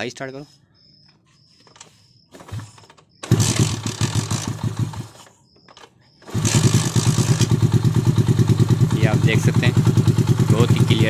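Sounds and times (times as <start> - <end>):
motorcycle engine starting: 2.4 - 11.0.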